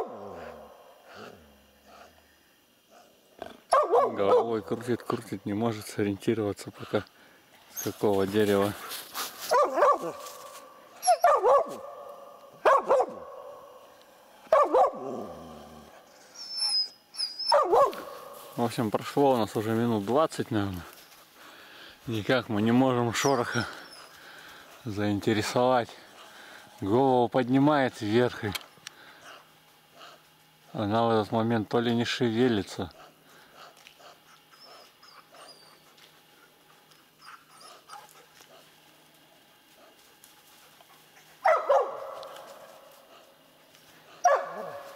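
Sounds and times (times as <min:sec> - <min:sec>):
dog barking: 0:03.7 - 0:04.6, 0:09.5 - 0:10.2, 0:11.0 - 0:13.6, 0:14.5 - 0:15.4, 0:17.4 - 0:18.3, 0:41.4 - 0:42.5, 0:44.2 - 0:44.9.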